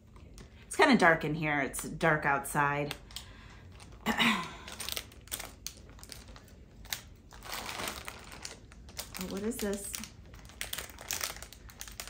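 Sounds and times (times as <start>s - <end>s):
plastic packaging crinkling: 2.8s - 12.0s.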